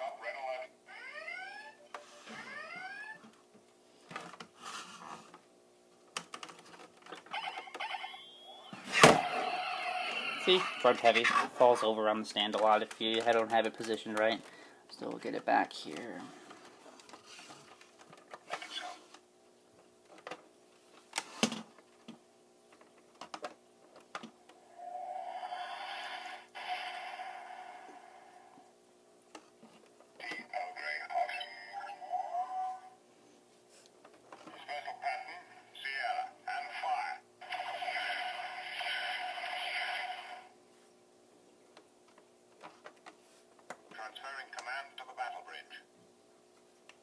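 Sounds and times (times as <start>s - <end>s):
toy electronic sound effect: 0.0s - 3.3s, 7.3s - 11.1s, 36.8s - 40.5s.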